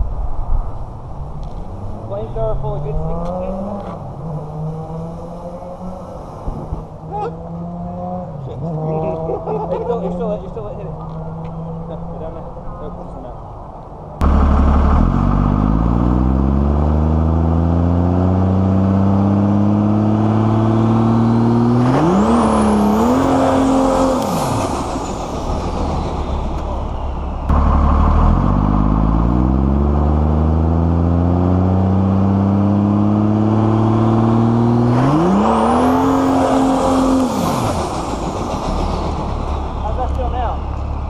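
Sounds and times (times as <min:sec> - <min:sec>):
diesel truck engine revving: 0:14.2 - 0:41.0.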